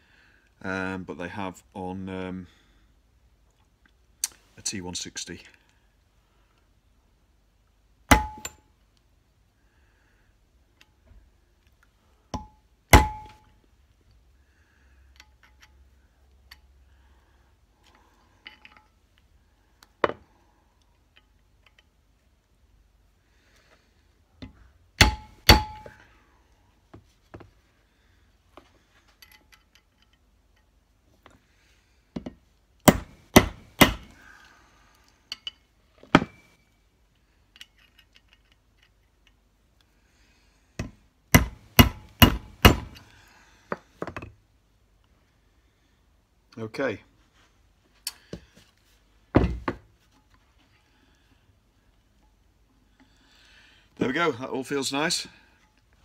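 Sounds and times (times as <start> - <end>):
hammer tapping metal punch: 8.1 - 8.6, 12.4 - 13.4, 25.0 - 26.0, 32.9 - 34.1, 40.8 - 43.0.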